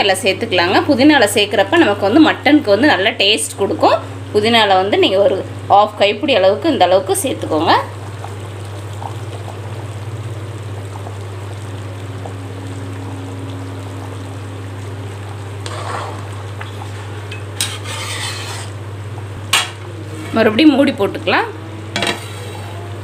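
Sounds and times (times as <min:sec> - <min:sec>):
steady low hum: 0:00.0 - 0:23.0
curry bubbling in a pan: 0:04.8 - 0:21.2
ladle stirring: 0:15.4 - 0:18.8
ladle scraping pan: 0:15.6 - 0:18.8, 0:22.0 - 0:22.8.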